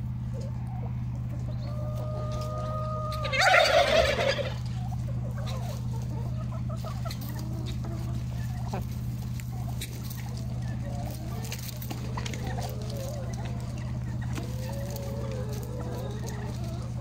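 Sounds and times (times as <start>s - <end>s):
chicken calling: 0.0s - 17.0s
chicken squawking harshly: 1.9s - 4.6s.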